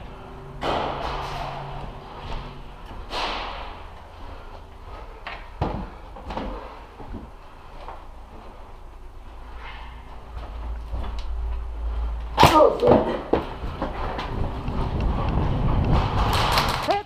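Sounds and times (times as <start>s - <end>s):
bangs echoing in a hall: 0.0s - 4.0s.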